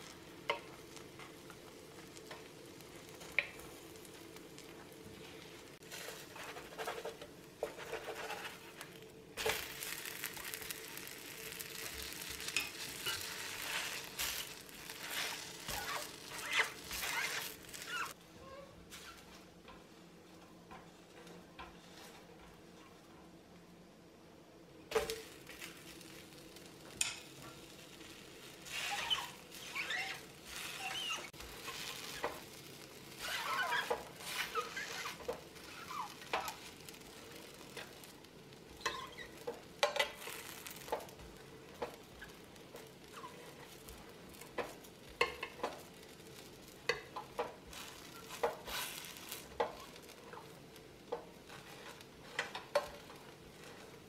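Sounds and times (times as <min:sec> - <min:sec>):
faint sizzling: 0:00.0 - 0:54.0
metal turner scraping a skillet: 0:04.6 - 0:18.2, 0:20.7 - 0:23.0, 0:26.9 - 0:54.0.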